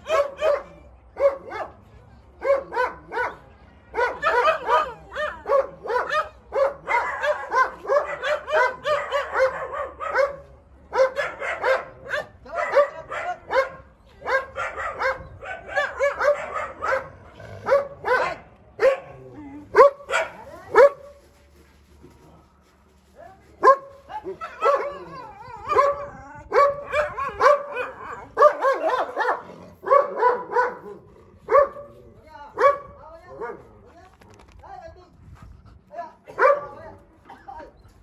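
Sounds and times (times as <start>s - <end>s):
dogs barking: 0.0s - 1.8s, 2.4s - 3.4s, 4.0s - 21.1s, 23.6s - 32.0s, 32.6s - 33.6s, 36.3s - 37.4s.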